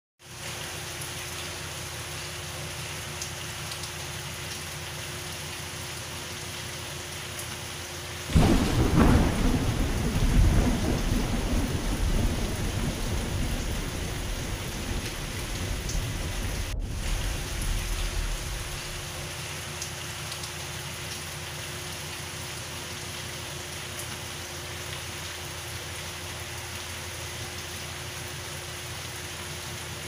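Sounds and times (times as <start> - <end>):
steady rain falling: 0.2 - 30.0
low rumble of thunder: 8.3 - 19.3.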